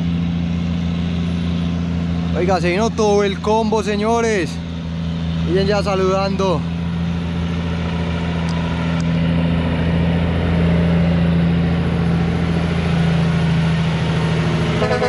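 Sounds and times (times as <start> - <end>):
heavy diesel truck engine droning: 0.0 - 15.0
air horn blowing: 14.8 - 15.0.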